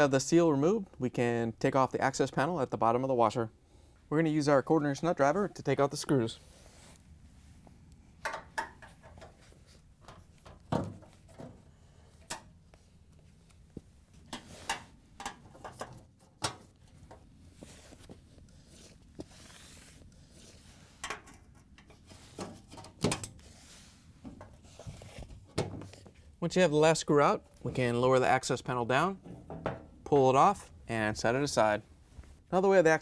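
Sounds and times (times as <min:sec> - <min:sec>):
gloved hands rubbing metal panel: 0:17.1 - 0:22.6.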